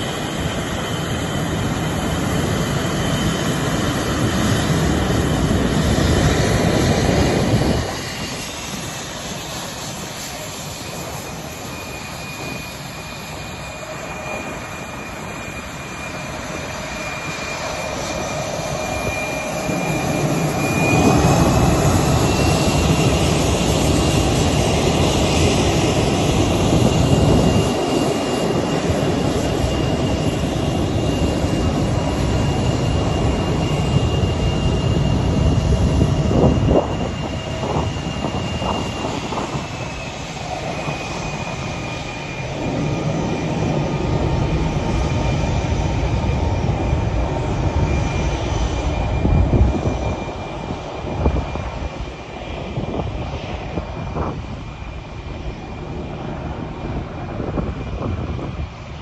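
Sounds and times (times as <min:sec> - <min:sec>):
heavy jet engine rumble: 0:00.0 - 0:59.0
jet turbine whine: 0:00.0 - 0:59.0.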